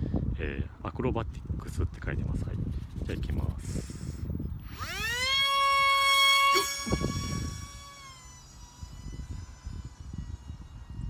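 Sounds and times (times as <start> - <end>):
model plane motor whining: 3.6 - 11.0.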